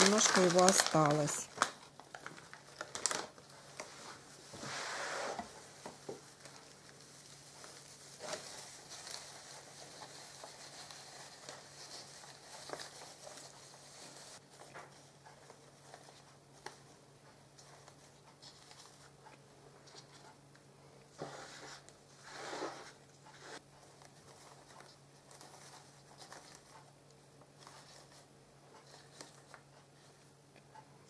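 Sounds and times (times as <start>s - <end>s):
dry moss rustling: 0.0s - 14.6s.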